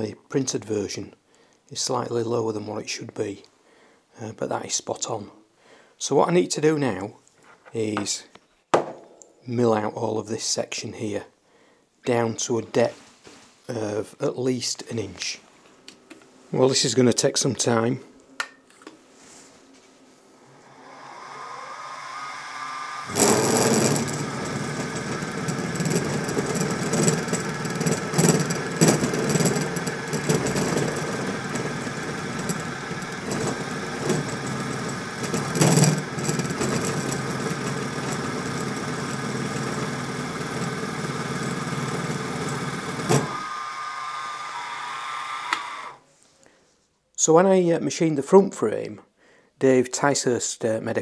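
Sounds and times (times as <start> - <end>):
end mill cutting metal: 20.4 - 46.0
milling machine spindle whine: 20.4 - 46.0.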